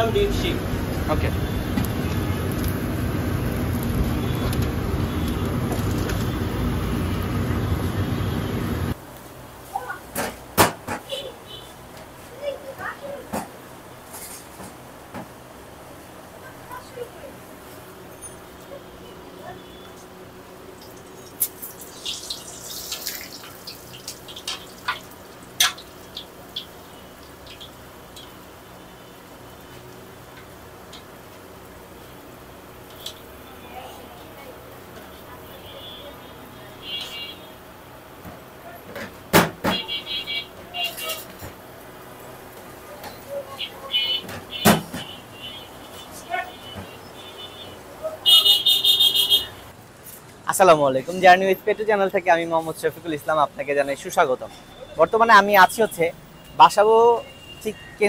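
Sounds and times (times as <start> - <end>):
loud rumbling noise: 0.2 - 9.0
oil crackling: 1.6 - 7.4, 20.7 - 31.8
oil sizzling: 20.5 - 33.5.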